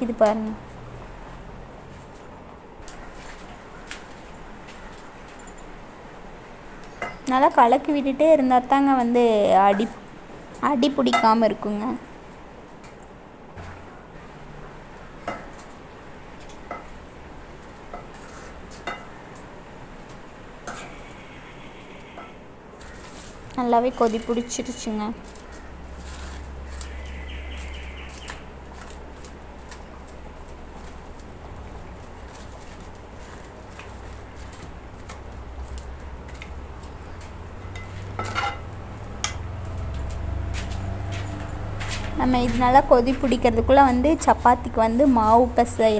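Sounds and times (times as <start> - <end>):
firewood sticks clicking: 22.8 - 42.5
metal ladle clattering on pan: 37.6 - 39.4.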